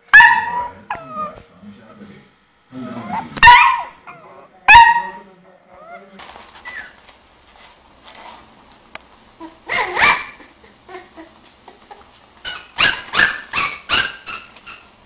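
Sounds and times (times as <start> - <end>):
puppy yapping: 0.1 - 1.4, 3.0 - 5.2, 6.6 - 7.0, 9.4 - 10.5, 12.4 - 15.0
puppy whining: 0.1 - 1.5, 2.8 - 7.1, 9.3 - 15.0
newborn puppies squeaking: 0.2 - 1.4, 5.8 - 7.0, 9.4 - 10.5, 12.4 - 15.0.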